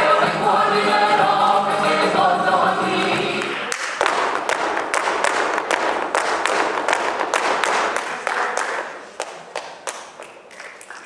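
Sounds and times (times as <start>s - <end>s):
audience clapping: 3.4s - 11.0s.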